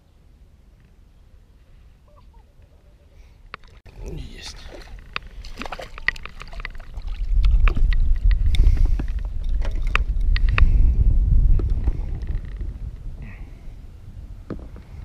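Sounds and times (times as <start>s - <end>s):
tackle clicks and knocks: 4.7s - 10.7s.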